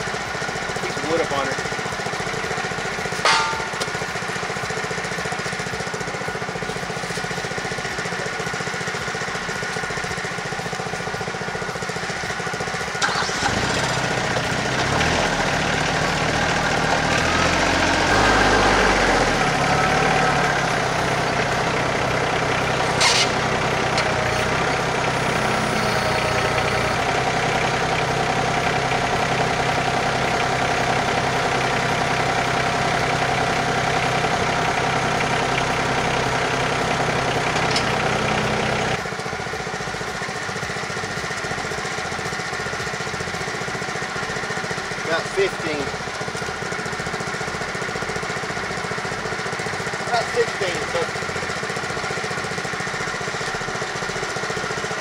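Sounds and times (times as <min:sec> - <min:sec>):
tractor diesel engine revving: 0:00.0 - 0:55.0
sharp metallic knock: 0:03.2 - 0:04.0.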